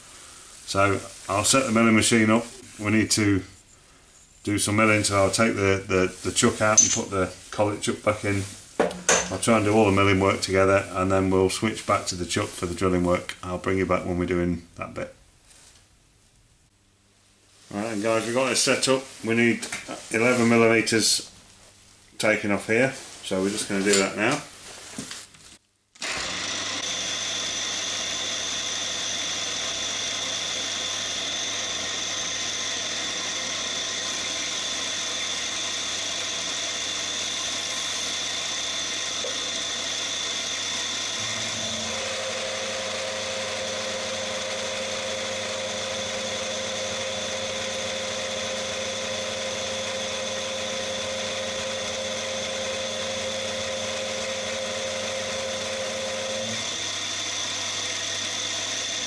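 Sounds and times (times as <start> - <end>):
end mill cutting aluminium: 26.0 - 59.0
milling machine running: 26.0 - 59.0.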